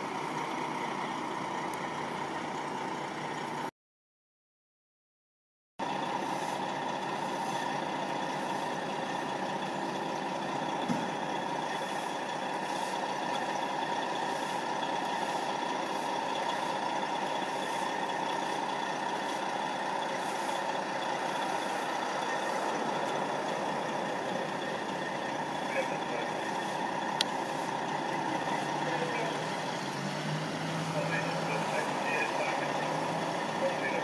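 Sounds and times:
fire truck engine idling: 0.0 - 3.7, 5.8 - 34.0.

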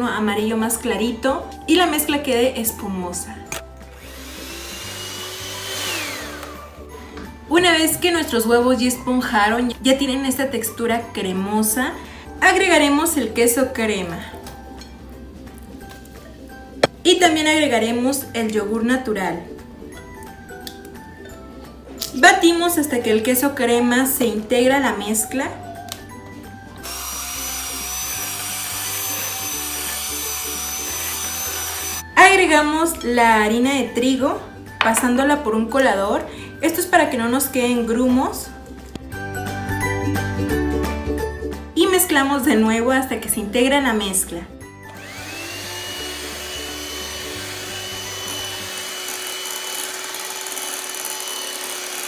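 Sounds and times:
electric hand mixer whining: 3.8 - 7.1, 26.8 - 32.1, 44.8 - 52.0.

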